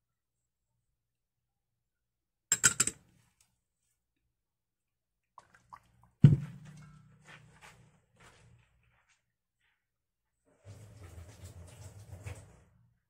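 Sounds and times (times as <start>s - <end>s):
knock against steel bowl: 6.2s - 6.8s.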